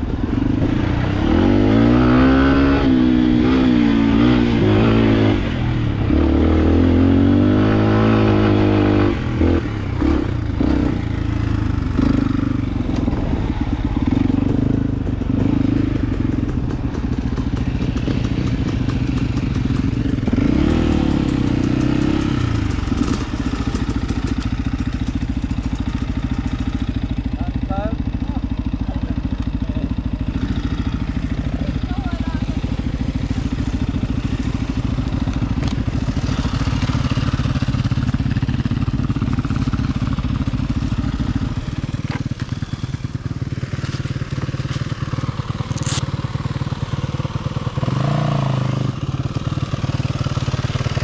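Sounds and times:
motorcycle engine revving: 0:00.0 - 0:51.0
bike knocks and rattles: 0:14.1 - 0:27.3.

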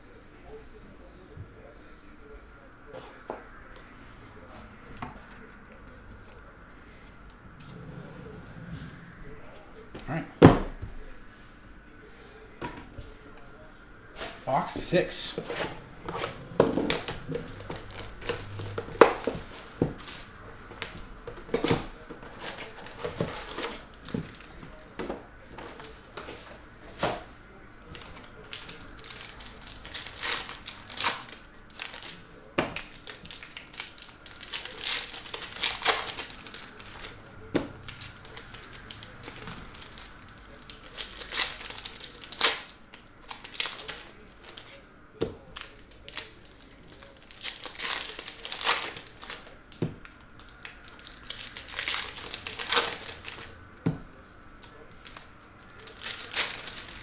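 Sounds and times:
foil wrappers crinkling and tearing: 0:15.3 - 0:44.8, 0:45.4 - 0:53.6, 0:54.5 - 0:57.0.

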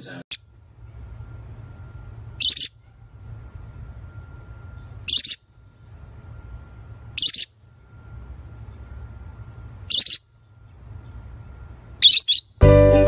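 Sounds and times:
low steady hum: 0:00.0 - 0:13.0
parrot shrill chirps: 0:02.4 - 0:02.8, 0:05.0 - 0:05.5, 0:07.2 - 0:07.6, 0:09.8 - 0:10.3, 0:12.0 - 0:12.6.

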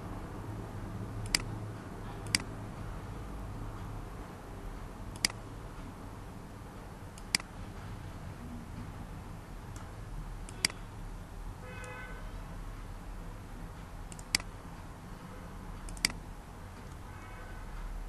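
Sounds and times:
steady low hum: 0:00.0 - 0:18.0
computer mouse clicks: 0:01.2 - 0:01.5, 0:02.2 - 0:02.5, 0:05.1 - 0:05.4, 0:09.7 - 0:10.8, 0:14.1 - 0:14.5, 0:15.9 - 0:16.2.

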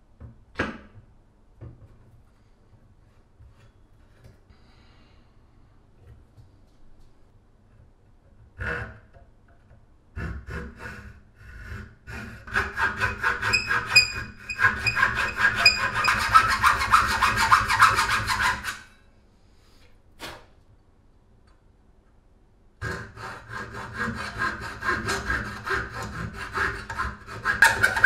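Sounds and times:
hacksaw cutting wood: 0:10.2 - 0:18.8, 0:22.8 - 0:28.0.

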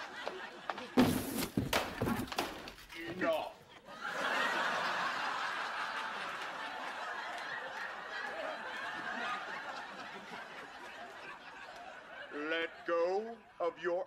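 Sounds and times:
studio audience laughing: 0:00.0 - 0:01.0, 0:03.8 - 0:13.8.

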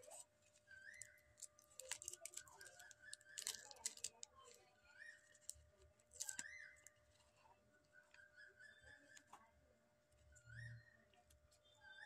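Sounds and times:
clicks and rustles of paper: 0:00.0 - 0:07.4
faint whistled notes: 0:10.3 - 0:11.0.

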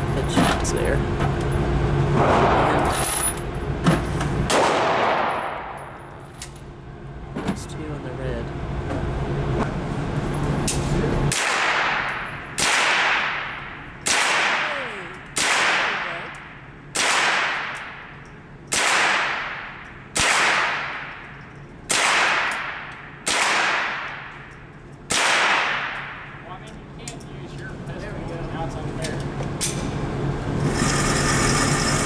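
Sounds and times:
rifle shots echoing indoors: 0:04.5 - 0:05.9, 0:11.3 - 0:16.3, 0:16.9 - 0:26.4.

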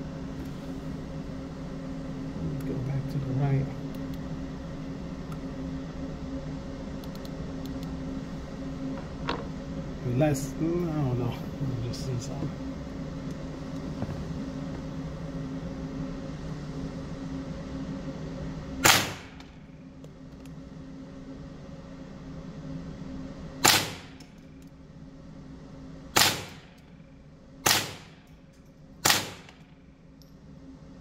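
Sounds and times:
suppressed rifle shots: 0:18.8 - 0:19.5, 0:23.6 - 0:24.2, 0:26.2 - 0:26.7, 0:27.6 - 0:28.2, 0:29.0 - 0:29.6.

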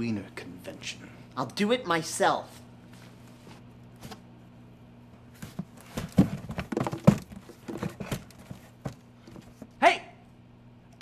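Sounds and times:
knocking and clattering: 0:05.6 - 0:09.5.

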